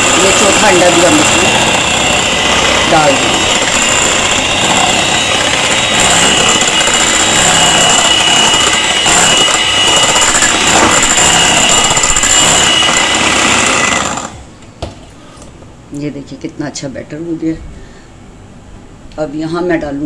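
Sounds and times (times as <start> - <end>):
electric hand mixer whining: 0.0 - 14.5.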